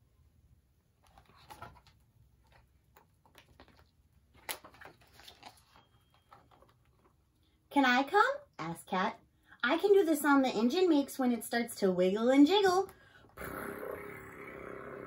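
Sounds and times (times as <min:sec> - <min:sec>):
book pages rustling: 0:01.0 - 0:07.2
page snapping: 0:01.1 - 0:05.8.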